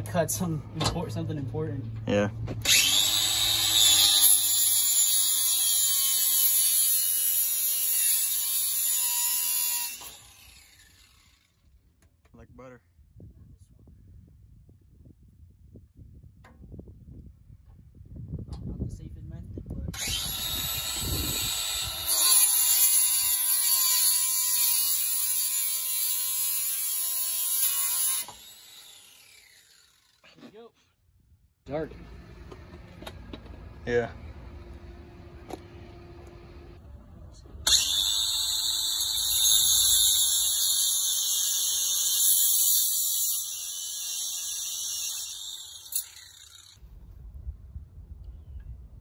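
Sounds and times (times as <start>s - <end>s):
angle grinder cutting steel: 2.6s - 11.5s, 20.0s - 30.2s, 37.6s - 46.8s.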